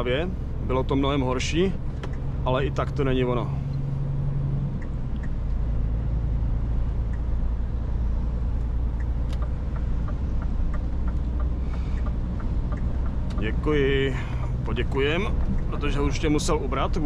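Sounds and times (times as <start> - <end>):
road noise: 0.0 - 17.0
truck engine drone: 0.0 - 17.0
cab ticks and rattles: 8.6 - 17.0.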